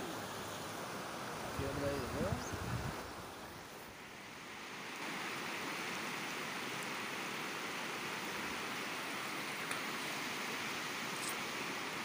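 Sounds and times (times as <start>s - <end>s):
river rushing over stones: 0.0s - 12.0s.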